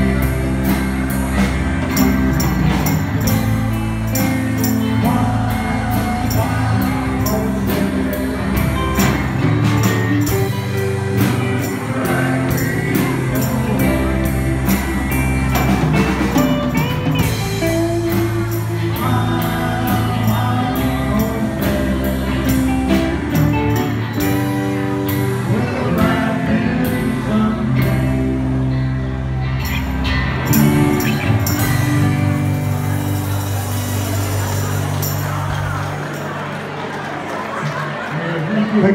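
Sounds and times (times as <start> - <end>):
rock band playing: 0.0 - 38.9
man singing: 4.2 - 28.7.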